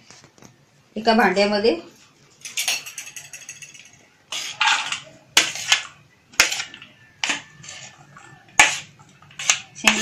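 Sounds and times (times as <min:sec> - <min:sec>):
spoon scraping and tapping bowl: 0:02.4 - 0:10.0.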